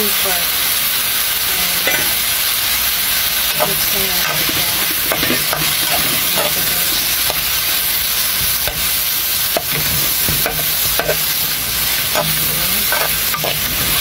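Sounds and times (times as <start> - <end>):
vegetables sizzling in hot oil: 0.0 - 14.0
metal spoon scraping pan: 1.8 - 2.4, 3.4 - 14.0.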